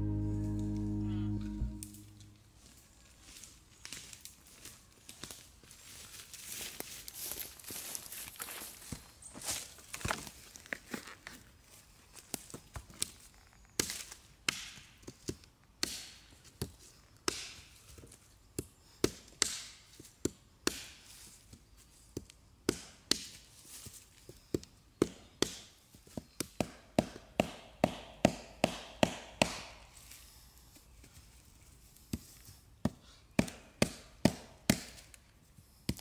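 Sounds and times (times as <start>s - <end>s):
blade chopping wood: 26.6s - 29.8s.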